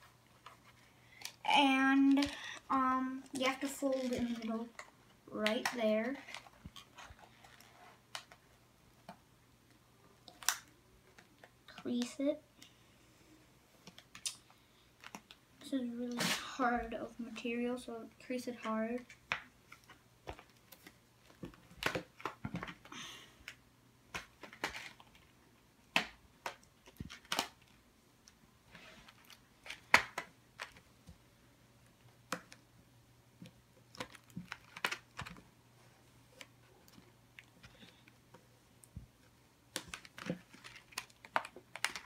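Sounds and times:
sharp clicks and crinkles: 19.0s - 30.9s, 33.4s - 35.5s, 36.3s - 42.0s.

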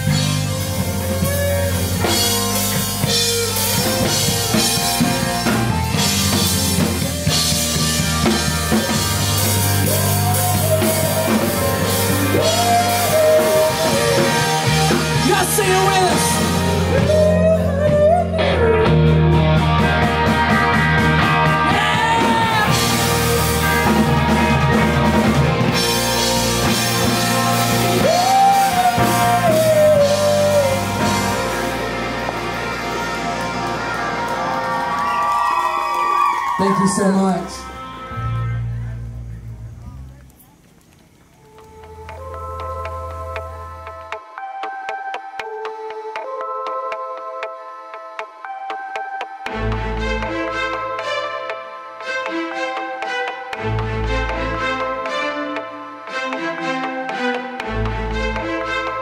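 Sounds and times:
rock band playing: 0.0s - 40.2s, 48.1s - 59.0s
person singing lead vocal: 9.8s - 19.2s, 21.4s - 23.1s, 27.8s - 31.7s.

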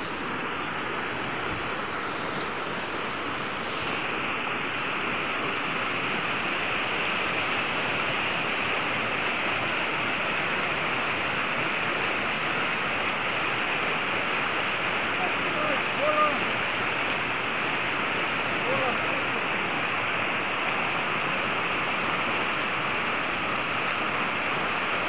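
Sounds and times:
river rushing over stones: 0.0s - 25.0s.

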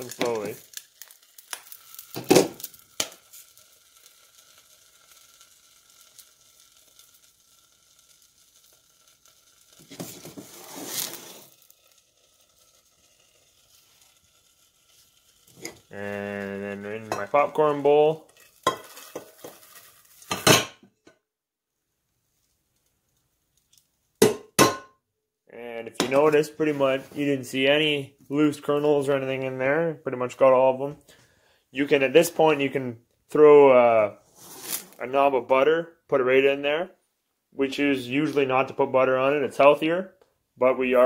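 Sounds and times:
popcorn kernels popping: 0.0s - 14.5s, 15.4s - 20.7s, 24.2s - 24.8s
hot oil sizzling: 0.0s - 20.9s
metal pot clattering: 17.1s - 17.5s, 18.2s - 20.8s, 24.2s - 24.9s.

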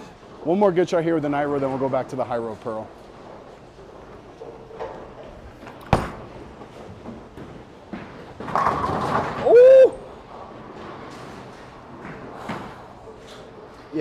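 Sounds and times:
bowling pins crashing: 4.6s - 12.8s
bowling ball thud on lane: 5.8s - 6.4s.

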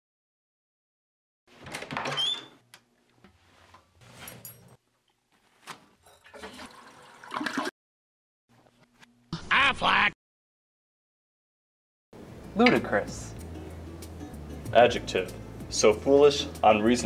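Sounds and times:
toilet flushing: 6.2s - 7.7s.

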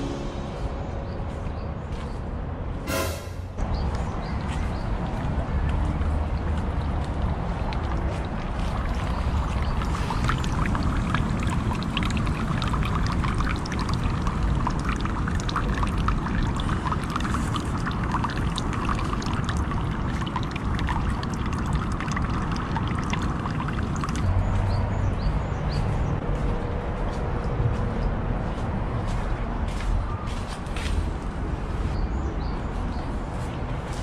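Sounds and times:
water pouring into stone basin: 6.3s - 24.7s.

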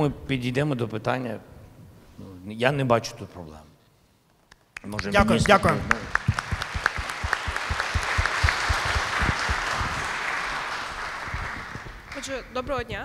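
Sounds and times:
large audience applauding: 4.8s - 12.6s.

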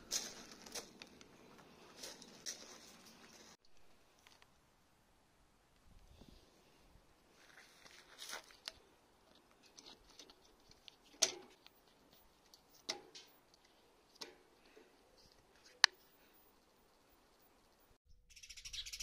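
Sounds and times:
small birds chirping: 14.6s - 19.0s.

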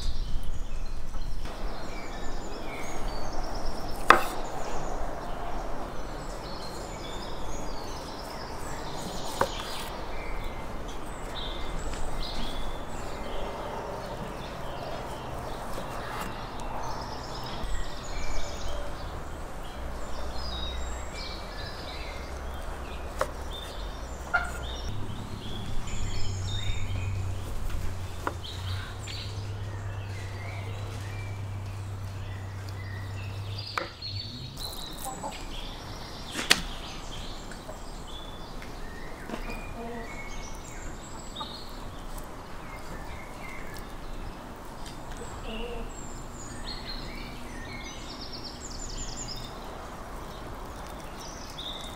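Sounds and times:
birds chirping: 0.0s - 51.9s
knife slicing fat: 4.0s - 4.4s
low hum: 16.3s - 36.2s.

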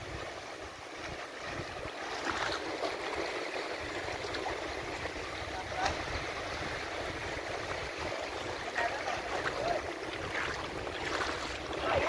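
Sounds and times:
seawater splashing and trickling: 0.0s - 12.0s.

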